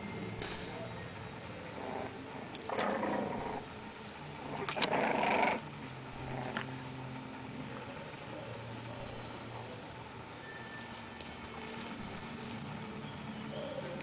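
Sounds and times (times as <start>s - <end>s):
puppies growling: 0.4s - 10.4s.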